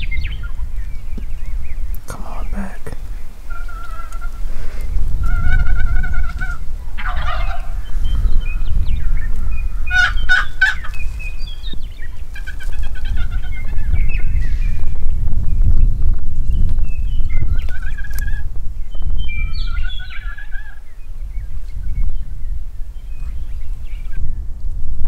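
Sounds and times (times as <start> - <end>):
wind rumble on microphone: 0.0 - 25.0
turkey gobbling: 3.4 - 4.6, 5.2 - 7.9, 9.9 - 11.0, 12.3 - 13.8, 19.8 - 20.8
wavering turkey calls: 3.4 - 11.4, 12.0 - 14.0, 17.6 - 18.5, 19.4 - 20.9.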